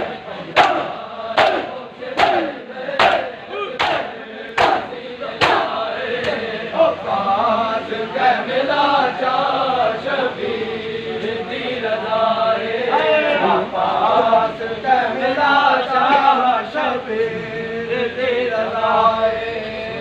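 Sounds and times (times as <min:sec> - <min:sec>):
men slapping chests in unison: 0:00.0 - 0:06.5
men chanting together: 0:00.0 - 0:20.0.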